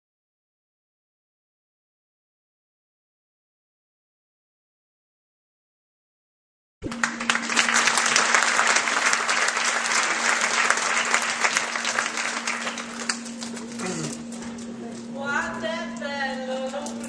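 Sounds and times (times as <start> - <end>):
audience clapping: 6.8 - 14.2
low hum: 6.8 - 17.0.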